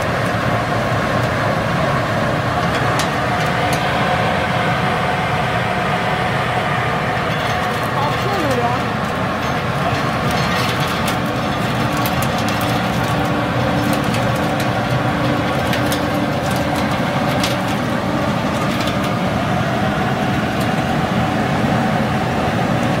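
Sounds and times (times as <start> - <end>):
roasting machine rushing and humming: 0.0 - 23.0
peanuts ticking into metal bin: 7.3 - 19.3.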